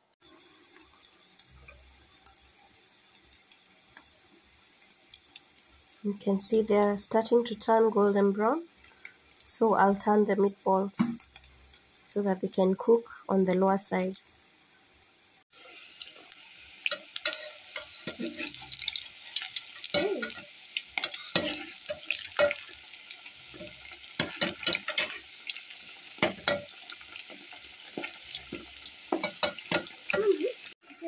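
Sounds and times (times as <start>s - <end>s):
meatballs sizzling in hot oil: 0.2s - 31.0s
metal spoon scraping a pot: 17.2s - 18.8s.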